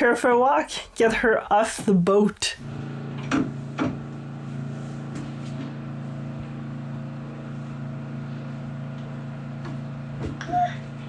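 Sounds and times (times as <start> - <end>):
vacuum cleaner humming: 2.6 - 11.0.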